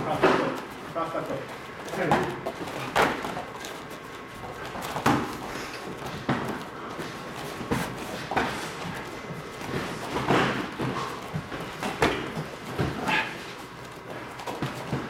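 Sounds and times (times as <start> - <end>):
padded gloves and pads thudding: 4.8 - 13.3.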